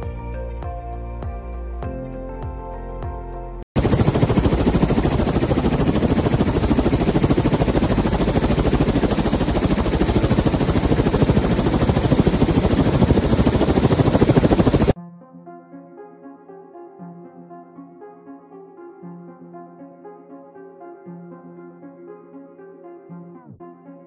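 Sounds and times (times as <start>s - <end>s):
helicopter rotor blades chopping: 3.8s - 15.0s
helicopter turbine noise: 3.8s - 15.0s.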